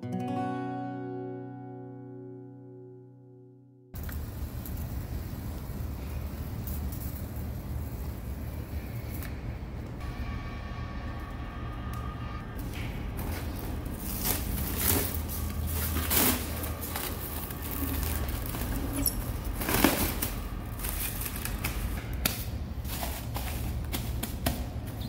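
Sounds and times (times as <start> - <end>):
steady low hum: 4.0 - 25.0
stretch wrap film crackling: 13.2 - 25.0.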